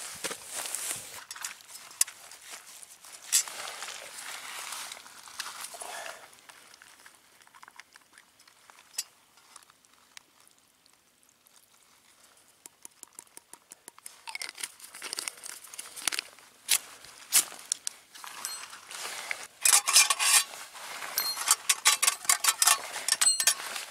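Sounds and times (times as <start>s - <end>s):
ferro rod scrape: 18.2s - 23.9s.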